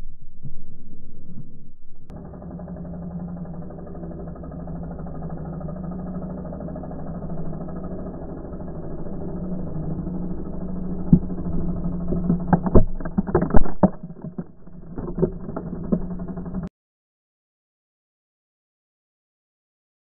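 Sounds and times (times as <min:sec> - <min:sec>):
scooter engine running: 0:02.1 - 0:16.7
wheel churning in mud: 0:02.1 - 0:16.7.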